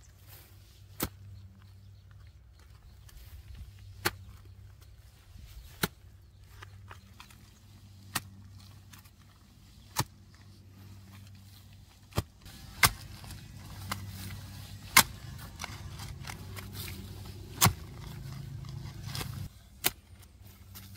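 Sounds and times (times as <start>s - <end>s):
hoe chopping into soil: 12.1s - 20.2s.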